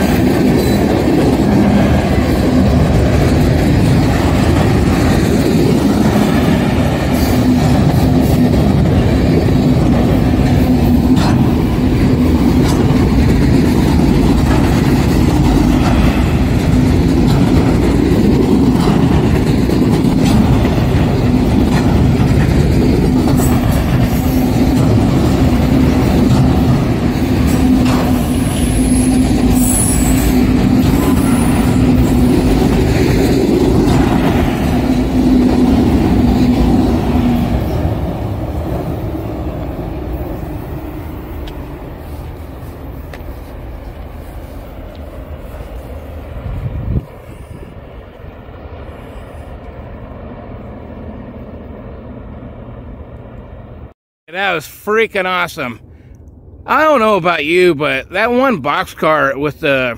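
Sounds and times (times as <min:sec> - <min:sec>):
train wheels clanking: 0:00.0 - 0:42.3
train wheels rumbling on rail: 0:00.0 - 0:54.6
high wheel squeals: 0:28.1 - 0:32.5.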